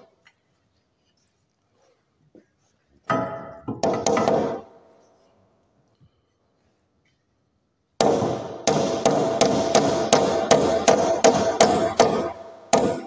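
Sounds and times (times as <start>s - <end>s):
hammer striking wooden slat: 3.1s - 4.7s, 8.0s - 13.0s.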